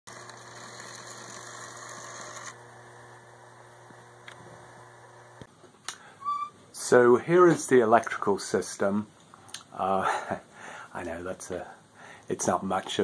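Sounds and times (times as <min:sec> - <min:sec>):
model train electric hum: 0:00.1 - 0:05.5.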